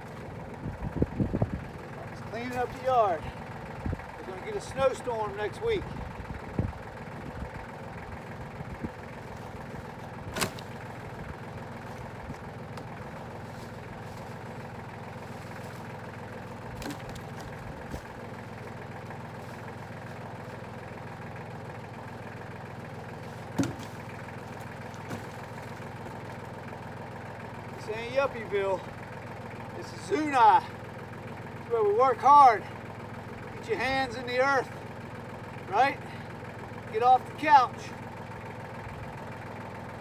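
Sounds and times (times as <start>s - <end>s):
tractor engine idling: 0.0s - 40.0s
wood knocking: 23.5s - 24.1s.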